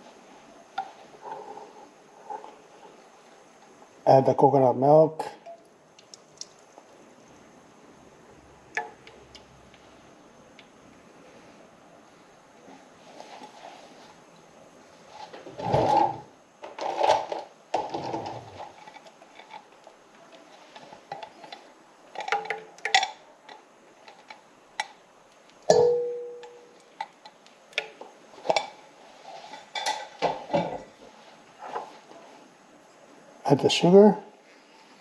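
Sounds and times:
ringing metal clank: 25.7s - 26.7s
can spoon and pan scraping: 28.4s - 30.8s.

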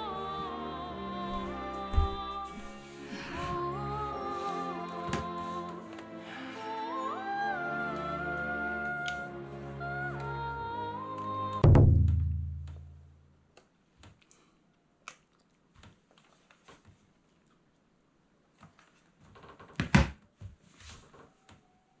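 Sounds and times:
background music: 0.0s - 12.8s.

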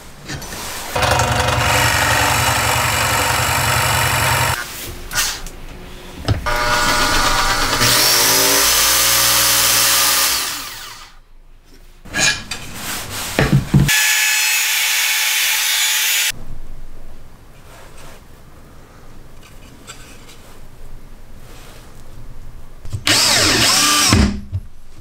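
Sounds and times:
jigsaw cutting wood: 1.0s - 4.6s, 6.5s - 11.2s, 23.1s - 24.2s.

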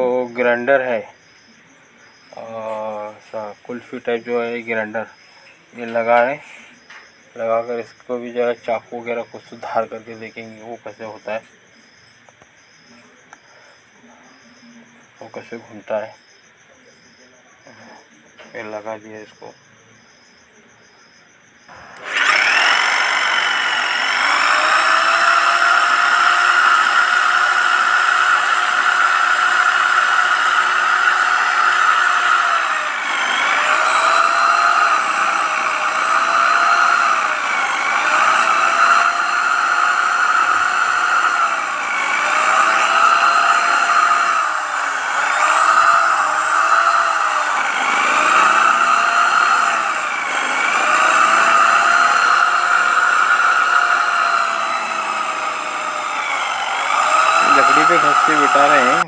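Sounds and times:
electric drill motor running: 21.7s - 59.0s
grinding stone on blade and wood: 21.7s - 59.0s.

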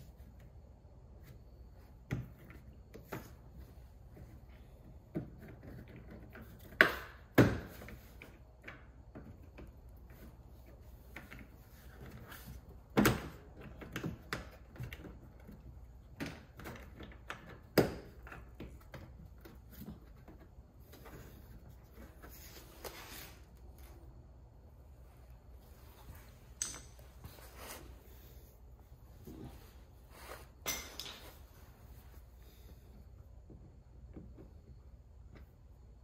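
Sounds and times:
clicks and knocks of tools: 30.6s - 31.4s.

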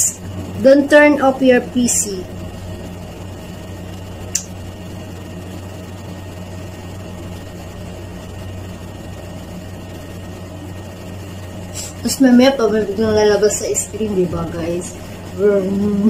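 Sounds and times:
faint steady tones: 0.0s - 16.0s
low mechanical hum: 0.0s - 16.0s
short click: 4.3s - 4.5s.

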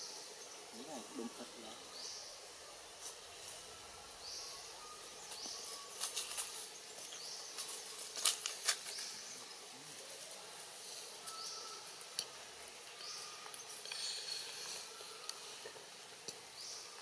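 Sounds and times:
faint high chirp: 3.4s - 8.1s, 10.9s - 12.4s
dry leaf litter crackling: 5.2s - 15.4s.

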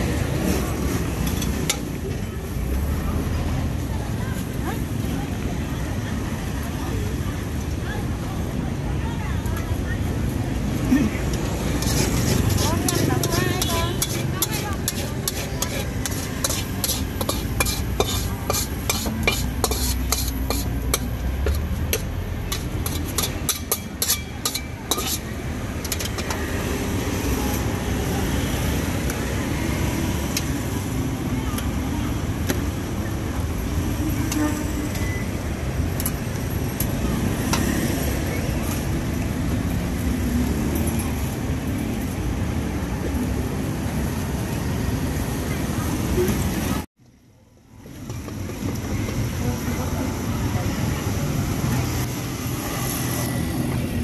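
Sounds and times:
low rumble of traffic: 0.0s - 54.0s
metal spatula scraping a wok: 11.5s - 26.4s.

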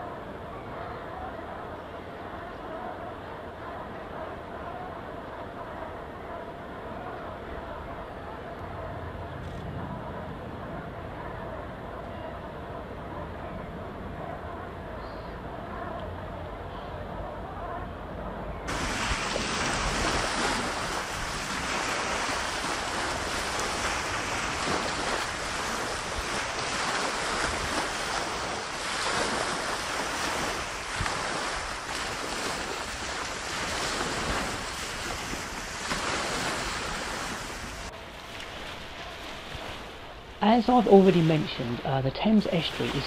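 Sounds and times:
wind: 0.0s - 43.0s
small waves breaking on shore: 18.7s - 43.0s.

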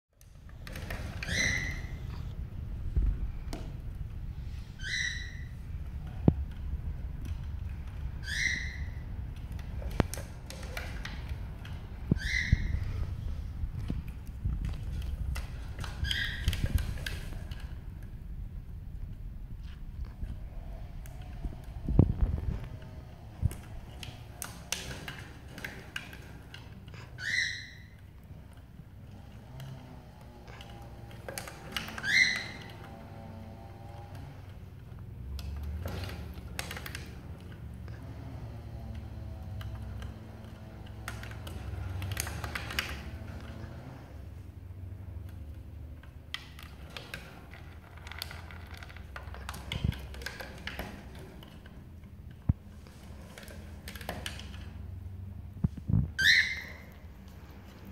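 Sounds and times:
steady low hum: 0.1s - 27.2s
scratchy rustling and clicking: 5.5s - 27.3s, 27.9s - 57.9s.

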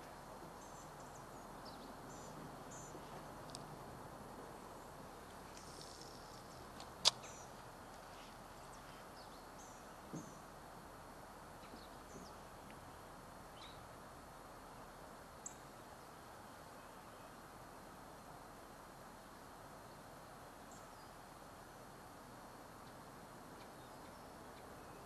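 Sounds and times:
low outdoor hiss: 0.0s - 25.0s
small tick: 3.4s - 3.7s.

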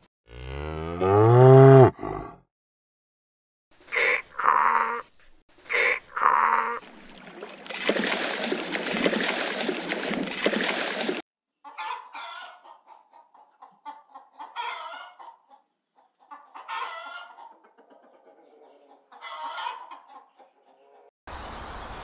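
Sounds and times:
chicken clucking: 11.6s - 21.1s.

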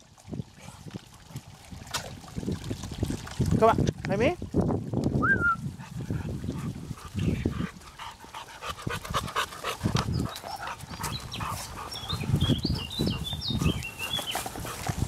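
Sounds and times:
dog panting: 5.8s - 15.0s
footsteps on dirt path: 10.3s - 15.0s.

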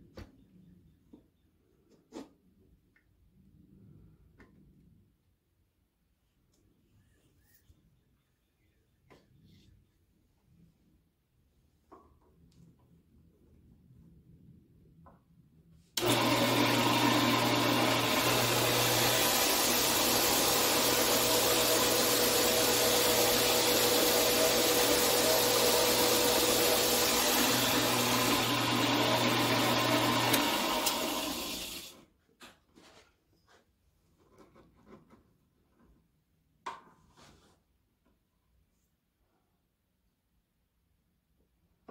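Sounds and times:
bandsaw cutting metal: 16.0s - 31.9s
bandsaw motor hum: 16.0s - 32.0s.

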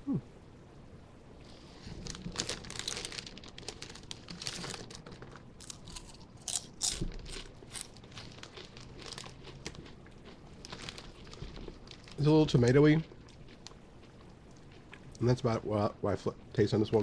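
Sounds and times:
foil bag crinkling: 1.7s - 13.8s
chips crunching: 1.9s - 15.2s.

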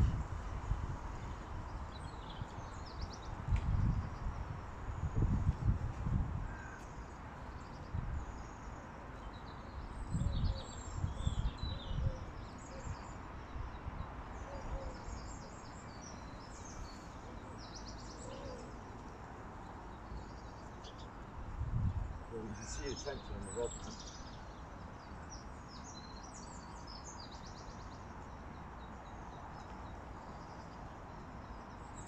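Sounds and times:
wind buffeting microphone: 0.0s - 6.8s, 9.9s - 12.9s, 21.4s - 23.4s
birds chirping: 21.9s - 32.0s.

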